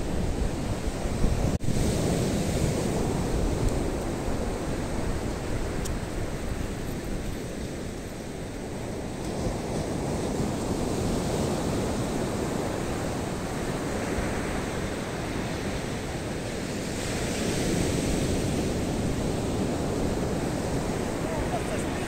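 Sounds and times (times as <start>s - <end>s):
wind on microphone: 0.0s - 22.0s
surf breaking on shore: 7.5s - 22.0s.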